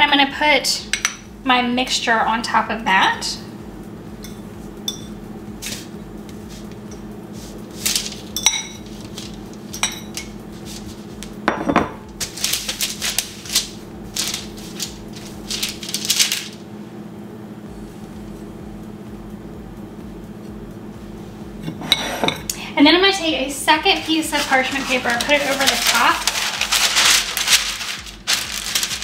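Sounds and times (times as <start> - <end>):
faint hum: 0.0 - 29.0
fork clinking against ceramic bowl: 4.2 - 5.2
fork scraping dough on paper: 5.6 - 9.4, 10.5 - 11.2, 23.9 - 28.9.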